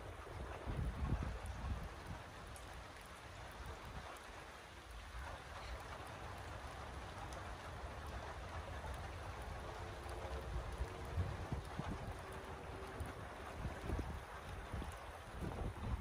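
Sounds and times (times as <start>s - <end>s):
raindrop ticks: 0.0s - 16.0s
steady rain hiss: 0.0s - 16.0s.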